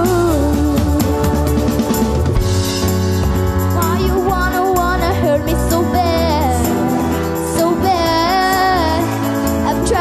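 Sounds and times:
female singer: 0:00.0 - 0:01.7, 0:03.7 - 0:10.0
pop band playing: 0:00.0 - 0:10.0.

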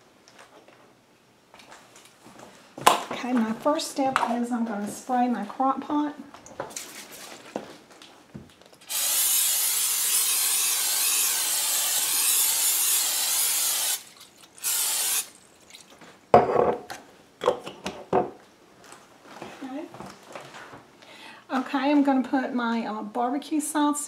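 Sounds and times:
aerosol cooking spray hissing: 0:08.9 - 0:15.3.

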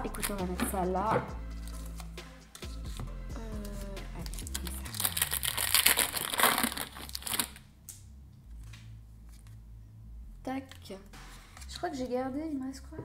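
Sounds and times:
foil wrapper crinkling: 0:04.2 - 0:07.6.

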